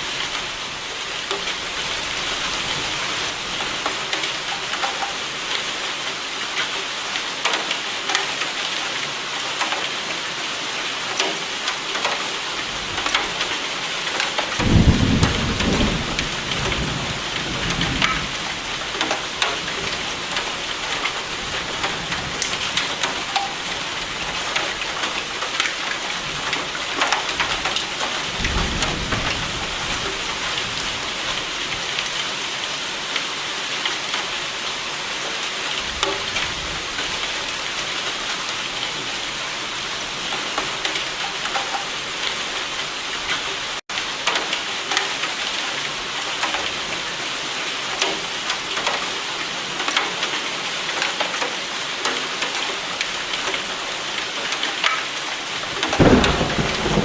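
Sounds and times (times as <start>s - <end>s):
rain drop ticks: 1.3s - 2.2s, 3.6s - 5.6s, 6.6s - 8.8s, 9.6s - 10.0s, 11.1s - 12.4s, 13.0s - 30.6s, 35.8s - 37.8s, 40.0s - 47.2s, 47.9s - 57.0s
thunder rolling: 14.6s - 18.4s, 56.0s - 57.0s.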